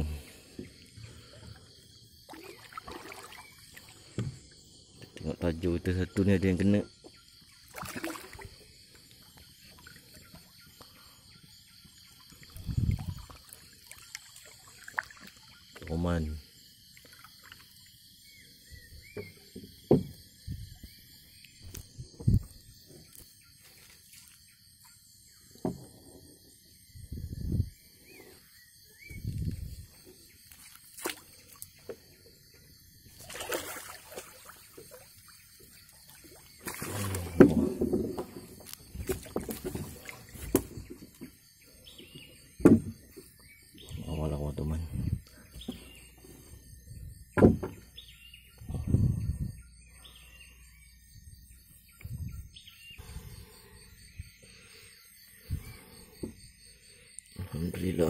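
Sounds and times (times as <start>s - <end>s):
fish thrashing and water splashing: 2.2s - 4.2s, 7.6s - 8.8s, 12.2s - 15.6s, 30.0s - 32.0s, 33.1s - 41.3s.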